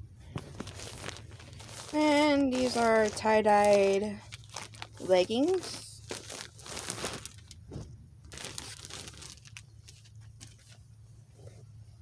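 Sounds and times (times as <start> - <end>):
plastic bag crinkling: 0.2 - 7.6, 8.3 - 10.2.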